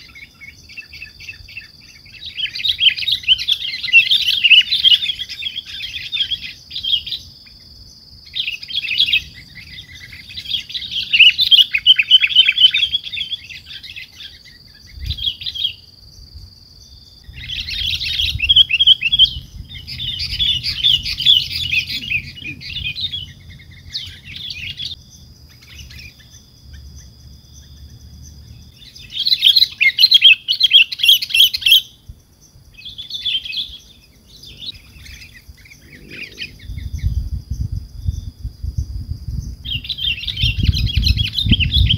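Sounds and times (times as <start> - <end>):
birds chirping: 0.0 - 38.4, 39.4 - 41.9
thin steady high tone: 34.3 - 37.3.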